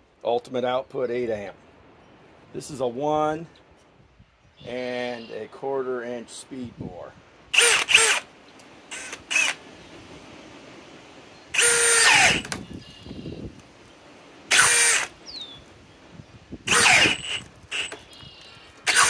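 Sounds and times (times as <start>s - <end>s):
drill motor whine: 7.6s - 8.2s, 8.9s - 9.6s, 11.6s - 13.1s, 14.5s - 15.1s, 16.7s - 18.2s.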